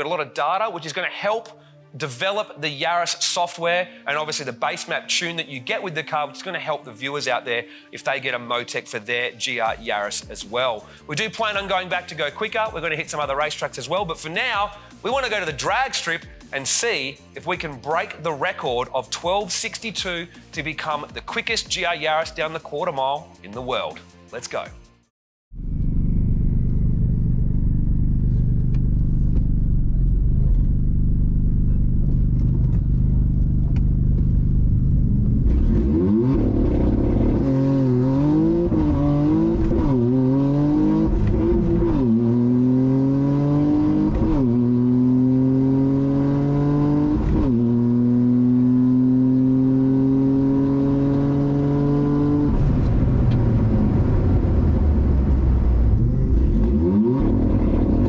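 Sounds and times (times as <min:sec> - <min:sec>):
car engine accelerating through gears: 0:25.6 - 0:58.0.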